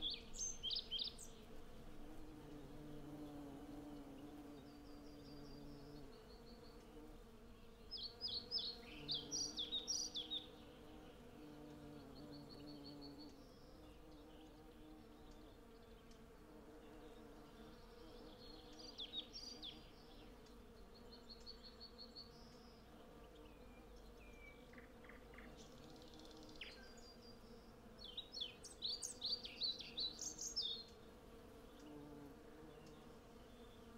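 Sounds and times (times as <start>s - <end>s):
bees buzzing: 0.0s - 33.9s
songbirds singing: 0.0s - 33.9s.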